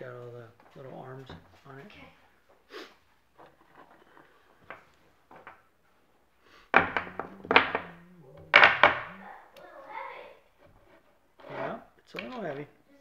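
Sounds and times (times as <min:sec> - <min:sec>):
knocks and thuds: 0:06.7 - 0:09.2.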